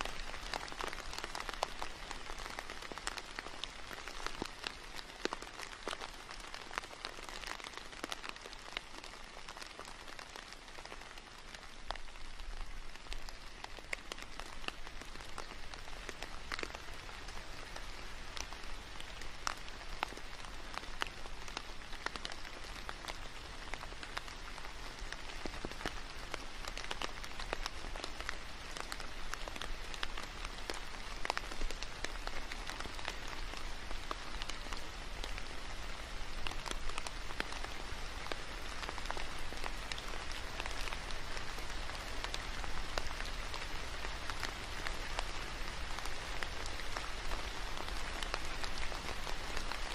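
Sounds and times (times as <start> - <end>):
steady rain falling: 0.0 - 49.9.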